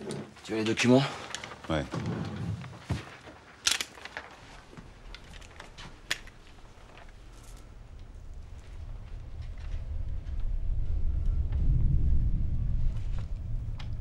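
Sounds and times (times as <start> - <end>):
low hum: 6.4 - 14.0.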